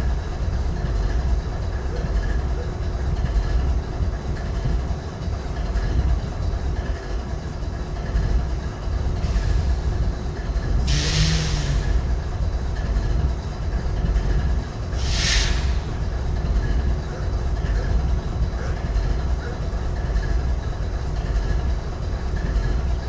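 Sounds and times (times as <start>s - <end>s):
locomotive idling: 0.0s - 23.0s
short bursts of hiss: 10.9s - 11.9s, 15.0s - 15.8s.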